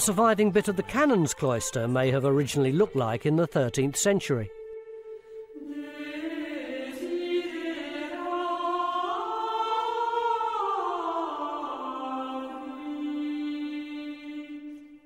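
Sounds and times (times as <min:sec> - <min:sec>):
choir chanting long notes: 0:04.6 - 0:15.0.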